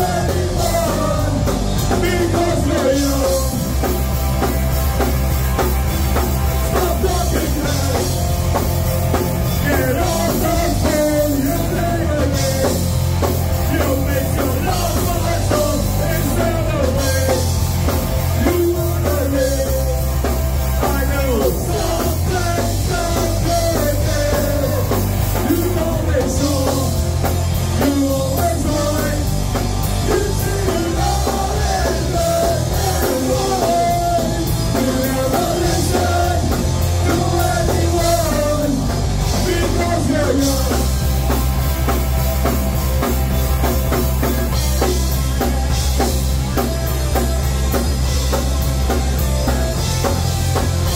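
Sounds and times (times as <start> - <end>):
person singing: 0.0 - 3.8, 20.8 - 40.9
bass guitar: 0.0 - 50.9
distorted electric guitars: 0.0 - 50.9
drum kit: 0.0 - 50.9.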